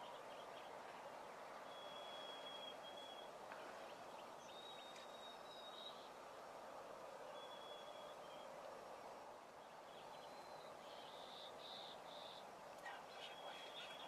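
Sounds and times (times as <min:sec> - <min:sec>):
outdoor background hiss: 0:00.0 - 0:14.0
distant bird whistling: 0:01.6 - 0:03.3, 0:07.4 - 0:08.4.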